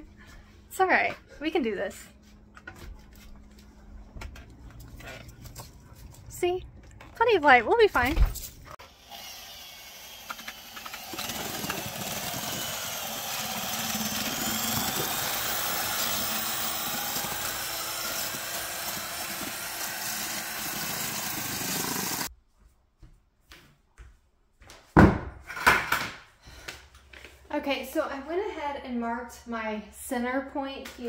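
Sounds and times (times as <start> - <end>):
drill mixer whining: 8.8 - 22.3.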